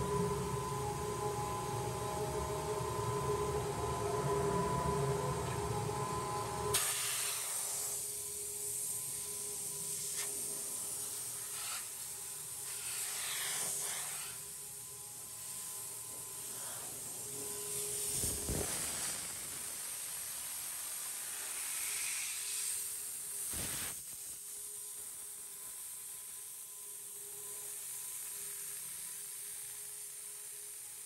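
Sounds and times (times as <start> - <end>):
faint machine hum: 0.0 - 31.0.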